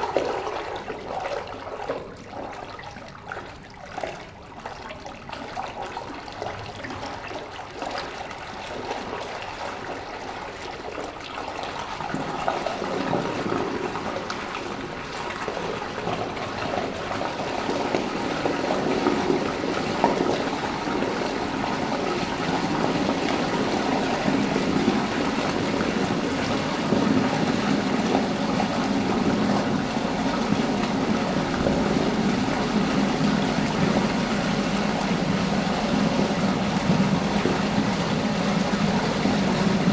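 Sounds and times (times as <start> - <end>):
rushing swirling water: 0.0 - 39.9.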